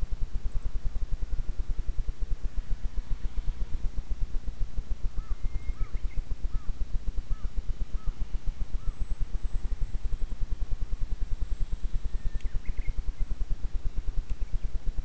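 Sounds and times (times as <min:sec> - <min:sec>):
fast-pulsing low rumble: 0:00.0 - 0:15.0
bird calling: 0:05.1 - 0:10.0, 0:12.0 - 0:13.4.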